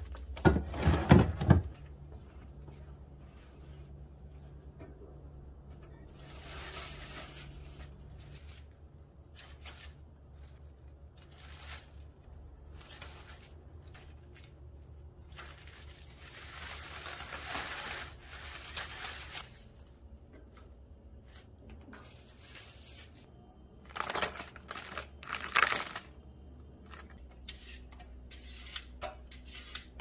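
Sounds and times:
dry onion skins rustling: 0:06.0 - 0:26.2.

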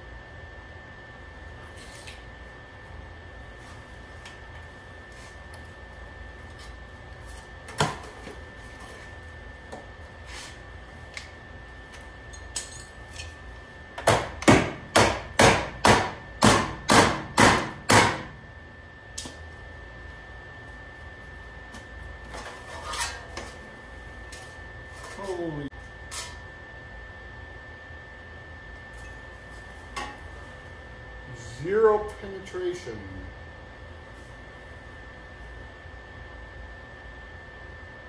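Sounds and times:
knocks on sheet steel: 0:14.0 - 0:18.3.

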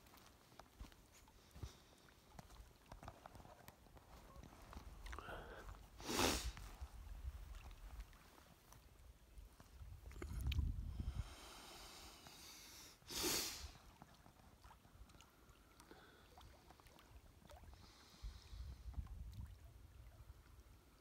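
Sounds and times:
person sniffing: 0:05.2 - 0:06.6, 0:11.4 - 0:13.8
person breathing in: 0:05.2 - 0:06.7, 0:10.8 - 0:13.8.

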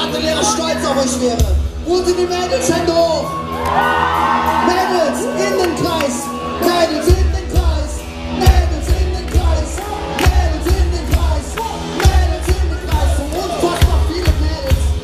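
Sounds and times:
bass: 0:00.0 - 0:15.0
drums beating: 0:01.0 - 0:15.0
person singing lead vocals: 0:05.2 - 0:15.0.

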